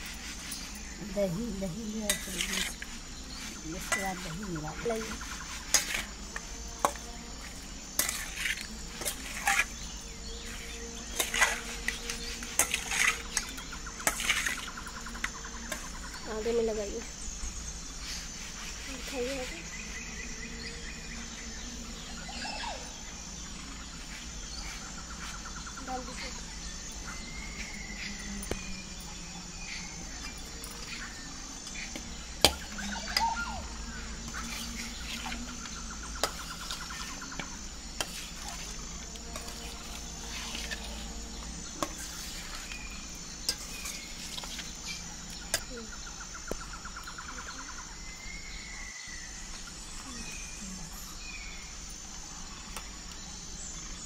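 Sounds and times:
metal spoon scraping steel bowl: 1.9 - 4.4, 5.0 - 6.2, 6.8 - 16.0, 38.0 - 41.2, 41.8 - 42.8, 43.5 - 44.7.

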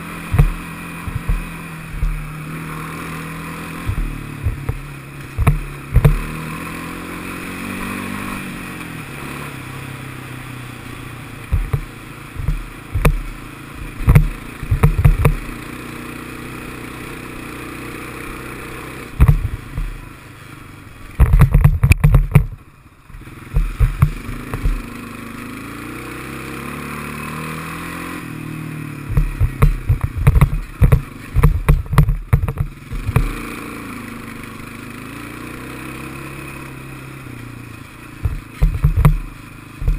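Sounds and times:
atv engine running: 0.0 - 39.9
loud low thumps and knocks: 0.3 - 2.3, 3.9 - 4.8, 5.4 - 6.2, 11.5 - 15.4, 19.2 - 19.9, 21.2 - 22.6, 23.6 - 24.8, 29.1 - 33.3, 38.2 - 39.2.

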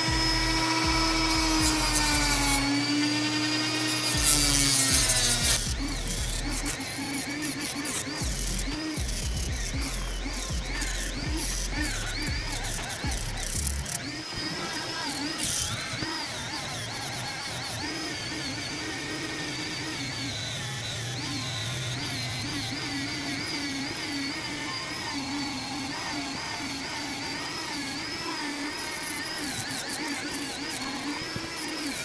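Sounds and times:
rotary tool sanding metal whine: 0.0 - 32.0.

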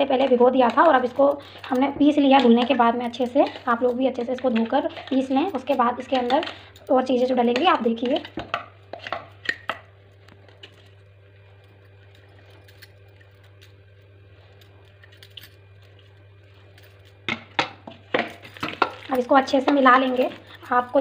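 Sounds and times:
kitchen utensils clicking: 0.1 - 9.8, 17.3 - 21.0.

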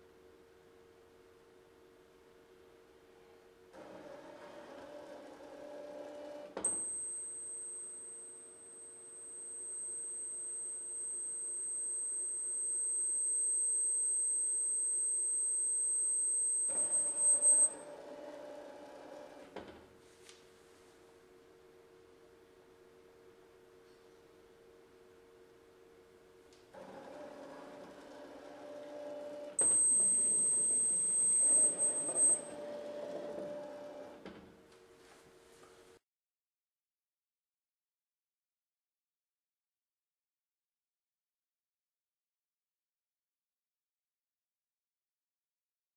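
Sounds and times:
faint steady hum: 6.4 - 18.9, 29.2 - 36.0
high-pitched electronic tone: 6.7 - 17.8, 29.6 - 32.6.

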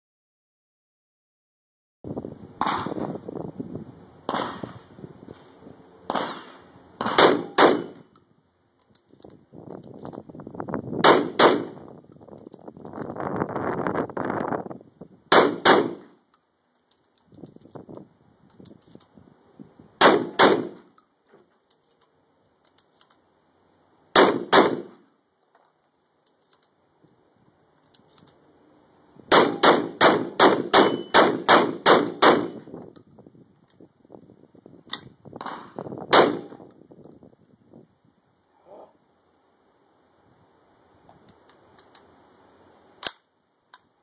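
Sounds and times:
shotgun shots: 2.6 - 3.1, 4.3 - 4.8, 6.1 - 8.1, 11.0 - 11.8, 15.3 - 16.2, 20.0 - 20.9, 24.1 - 25.0, 29.3 - 32.7, 35.4 - 36.6
shells clicking into magazine: 7.6 - 10.2, 16.3 - 17.8, 20.8 - 23.2, 26.1 - 26.8, 27.8 - 28.4, 41.3 - 42.1, 43.0 - 43.9.

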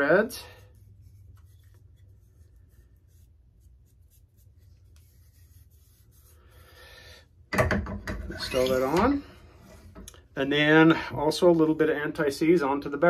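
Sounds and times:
fingertip rubbing on threads: 0.0 - 6.6.

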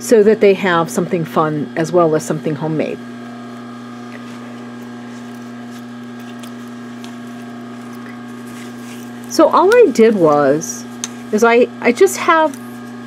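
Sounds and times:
low electrical hum: 0.0 - 13.0
towel rustling: 3.9 - 11.3.

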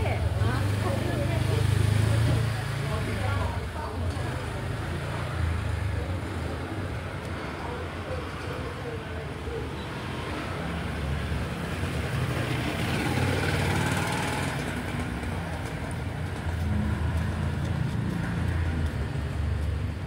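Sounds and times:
vehicle engines rumbling by: 0.0 - 20.0.

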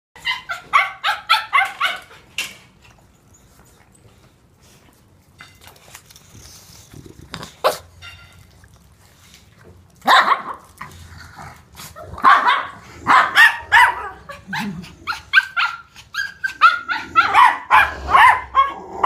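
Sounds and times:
small dog barking: 10.0 - 10.6, 12.2 - 14.3, 16.6 - 18.8.

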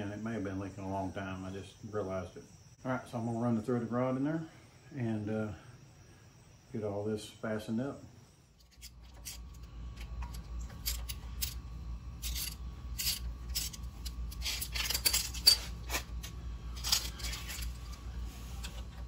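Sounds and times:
metal rod clinking and scraping: 8.6 - 11.6, 12.2 - 18.0.

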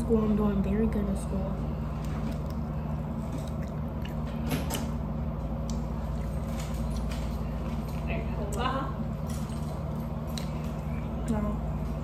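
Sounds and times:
steady low hum: 0.0 - 12.0
chewing and eating smacks: 1.9 - 7.4.

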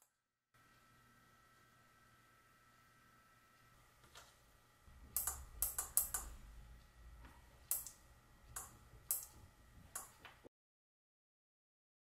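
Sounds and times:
faint low hum: 0.0 - 10.5
sharp clicks and taps: 5.1 - 6.3, 7.2 - 10.4.

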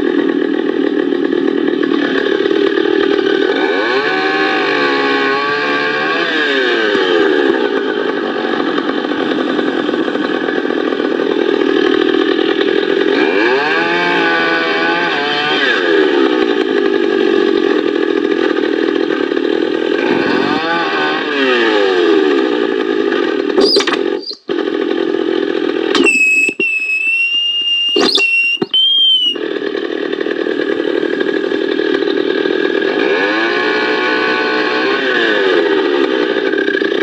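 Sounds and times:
chainsaw cutting wood: 0.0 - 37.0
high whistle-like tone: 23.6 - 24.4, 26.0 - 29.4.

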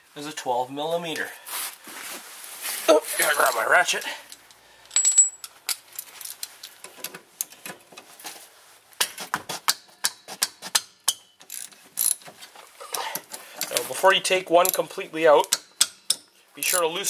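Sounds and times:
metal-on-metal clinks: 4.9 - 5.5
hand ratchet clicking: 9.7 - 12.3, 14.6 - 16.9.

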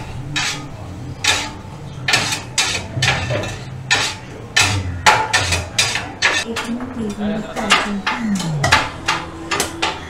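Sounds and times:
metal blades chopping on hot plate: 0.3 - 6.5.

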